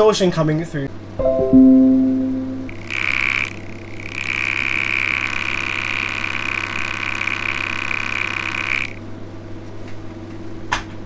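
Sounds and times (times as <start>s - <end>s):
high-pitched distortion buzz: 1.3s - 9.0s.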